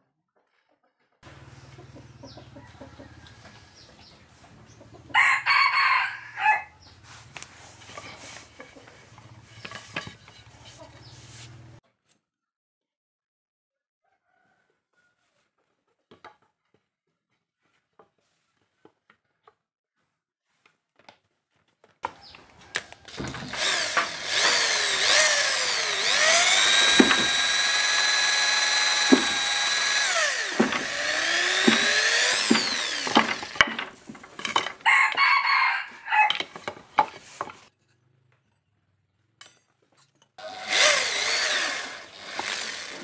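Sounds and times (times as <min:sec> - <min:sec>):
rough noise of tool at work: 0:07.0 - 0:11.8, 0:22.1 - 0:37.8, 0:40.4 - 0:43.0
electric power tool motor whine: 0:22.7 - 0:34.8, 0:40.4 - 0:43.0.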